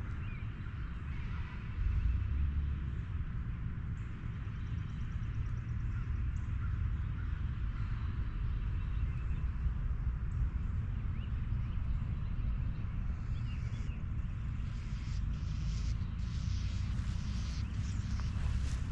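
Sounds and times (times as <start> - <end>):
wind rumble on microphone: 0.0 - 18.9
faint bird chirps: 11.1 - 18.9.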